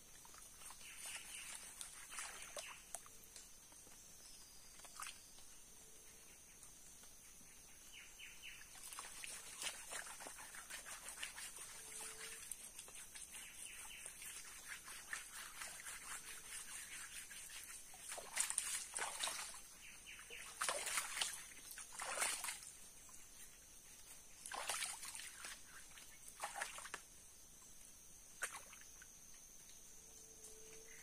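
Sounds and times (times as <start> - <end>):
hands splashing in water: 17.4 - 19.6, 20.4 - 22.7, 24.5 - 25.6.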